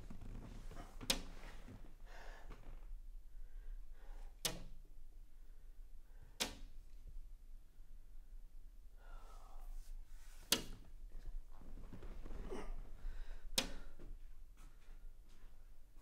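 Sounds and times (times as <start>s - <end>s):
clothing rustling: 0.0s - 2.0s, 11.1s - 13.0s.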